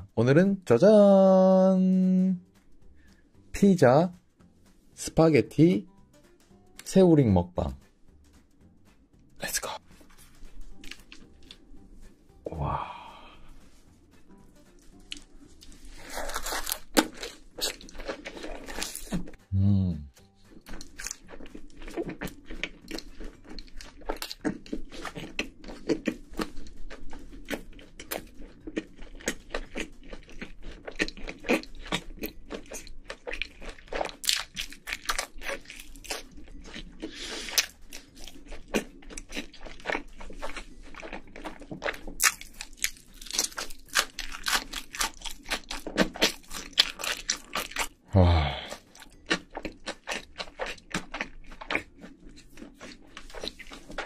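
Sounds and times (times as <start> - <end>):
chewing and crunching food: 9.4 - 19.4, 20.2 - 54.0.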